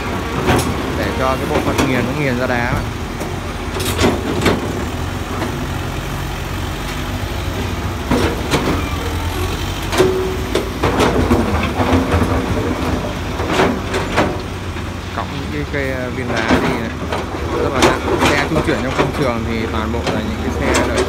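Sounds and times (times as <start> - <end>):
diesel truck engine running: 0.0 - 21.0
tipper body and rocks clanking: 9.9 - 21.0.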